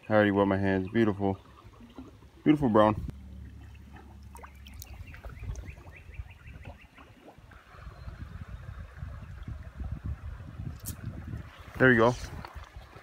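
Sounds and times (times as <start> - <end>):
creek running water: 0.0 - 13.0
bird chirping: 4.4 - 7.2
handling and wind noise on microphone: 7.6 - 13.0.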